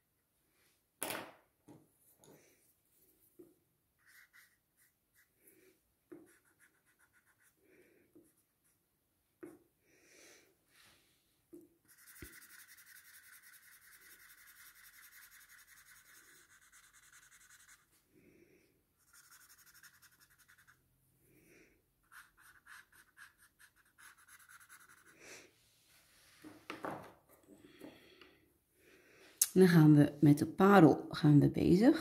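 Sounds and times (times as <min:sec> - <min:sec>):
pencil shading on paper: 0:04.0 - 0:05.4, 0:06.1 - 0:08.8, 0:11.8 - 0:18.0, 0:19.0 - 0:20.8, 0:22.0 - 0:25.2.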